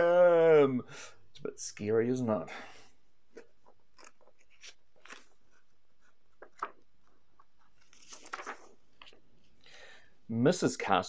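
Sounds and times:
soft clicks of book handling: 0:03.3 - 0:09.6
page turning rustle: 0:03.6 - 0:09.5.

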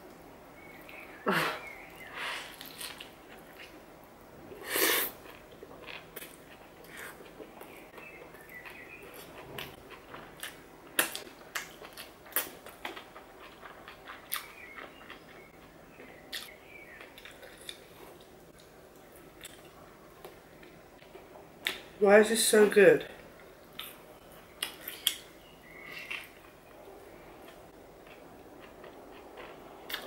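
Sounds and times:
wet chewing mouth sounds: 0:05.1 - 0:15.6, 0:27.4 - 0:30.0.

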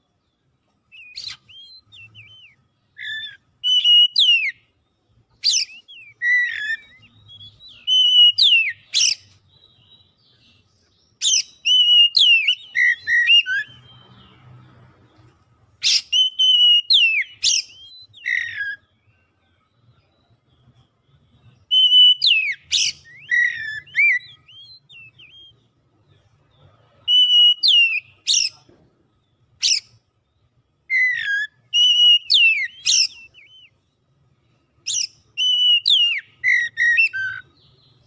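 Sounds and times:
bird singing whistles and clicks: 0:00.9 - 0:04.6, 0:05.4 - 0:09.4, 0:15.8 - 0:18.8, 0:21.7 - 0:25.6, 0:30.9 - 0:33.8, 0:34.9 - 0:37.5.

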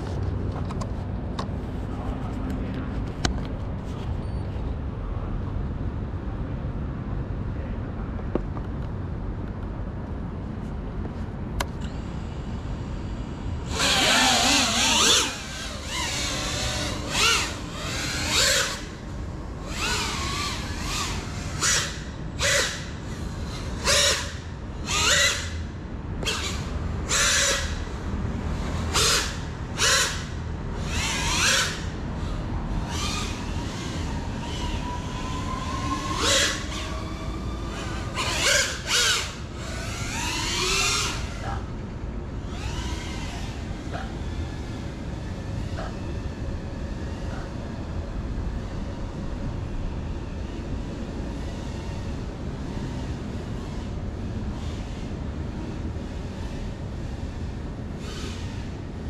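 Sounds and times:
steady background noise: 0:00.0 - 0:59.0
drone motors whining: 0:11.6 - 0:59.0.

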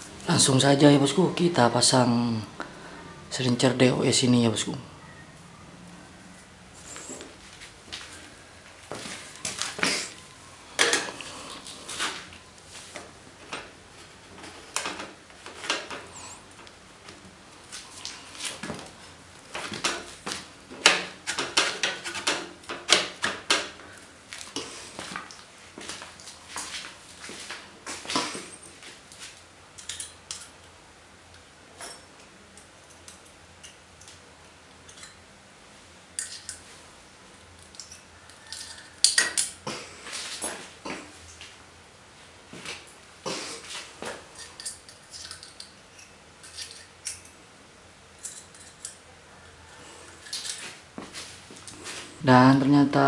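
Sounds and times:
metal parts clattering: 0:44.3 - 0:47.3
small metal parts clicking: 0:44.4 - 0:47.4.

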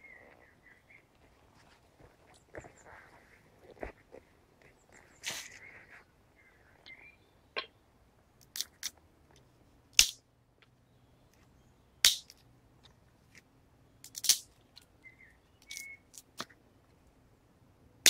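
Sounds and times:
sharp cracks: 0:08.4 - 0:09.0, 0:09.9 - 0:10.2, 0:12.0 - 0:12.5, 0:14.0 - 0:14.6.

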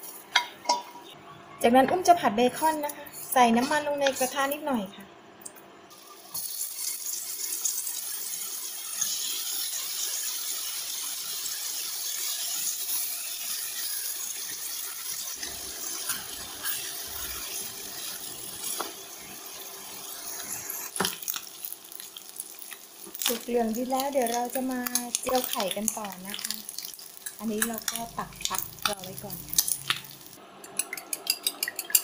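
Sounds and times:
meat sizzling in oil: 0:05.9 - 0:32.0.

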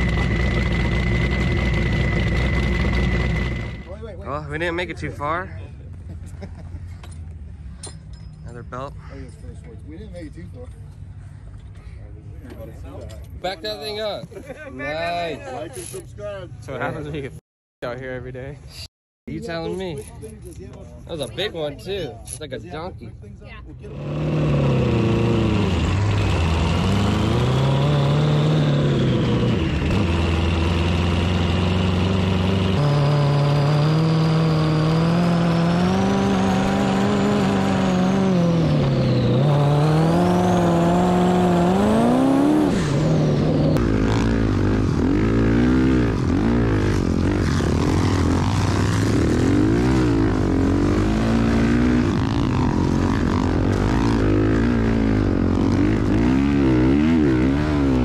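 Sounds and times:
dirt bike engine running: 0:00.0 - 0:04.7, 0:23.9 - 0:58.0
off-road engines revving: 0:00.0 - 0:05.5, 0:23.8 - 0:58.0.

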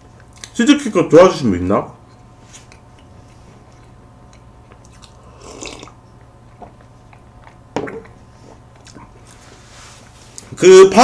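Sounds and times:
chewing with mouth clicks: 0:00.2 - 0:00.6, 0:02.0 - 0:09.4.

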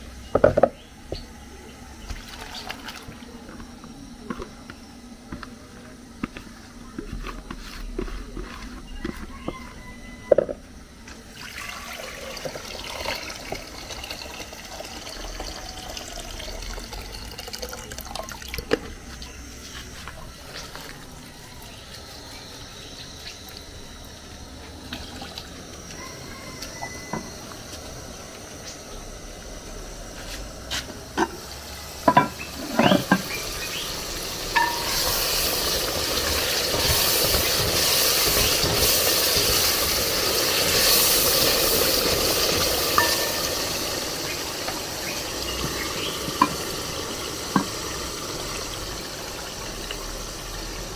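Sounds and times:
liquid sounds while cooking: 0:01.2 - 0:04.6, 0:11.0 - 0:50.9
steady hiss: 0:18.7 - 0:50.9.

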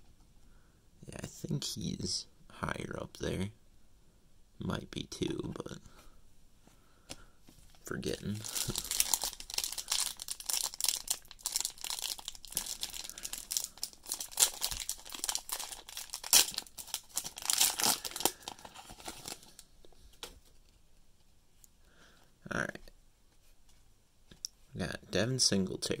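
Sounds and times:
plastic wrapper crinkling and tearing: 0:07.7 - 0:20.3.

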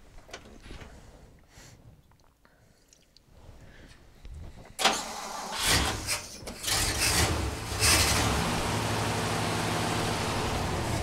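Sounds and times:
car engine cranking and running: 0:04.8 - 0:11.0.

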